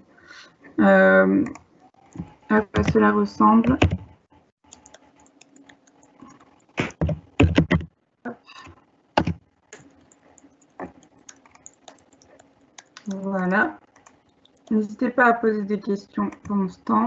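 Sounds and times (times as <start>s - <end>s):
typing on computer keyboard: 1.5s - 4.0s, 4.7s - 7.9s, 9.2s - 14.8s.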